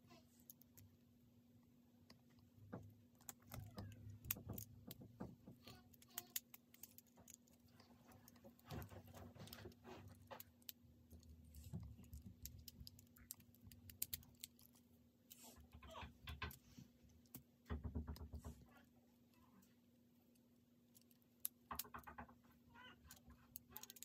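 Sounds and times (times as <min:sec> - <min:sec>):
faint steady hum: 0:00.0 - 0:24.0
plastic bricks clicking and rattling: 0:23.0 - 0:24.0.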